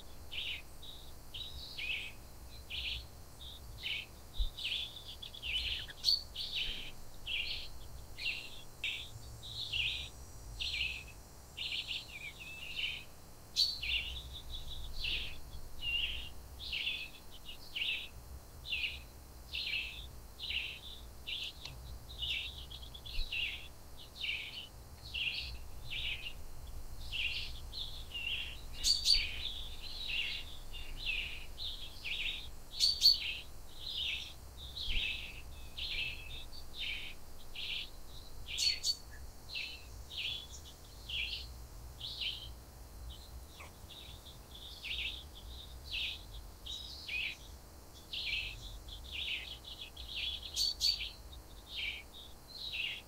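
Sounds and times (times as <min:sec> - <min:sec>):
birds chirping: 0:00.0 - 0:53.0.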